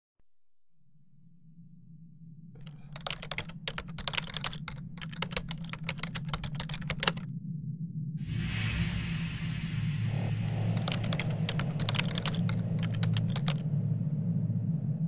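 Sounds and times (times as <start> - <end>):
steady low hum: 0.6 - 15.0
computer keyboard typing: 2.6 - 7.2, 10.7 - 13.6.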